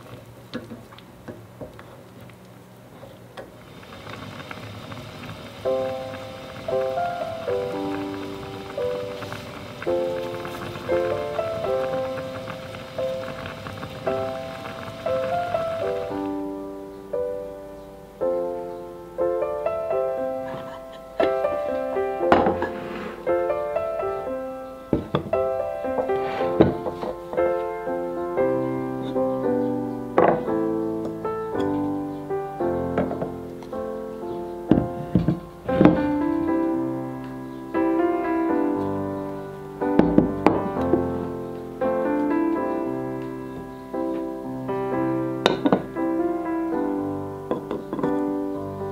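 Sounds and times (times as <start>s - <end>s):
gentle piano melody: 3.6s - 48.9s
pots knocking on wooden table: 26.5s - 27.2s, 45.5s - 45.9s.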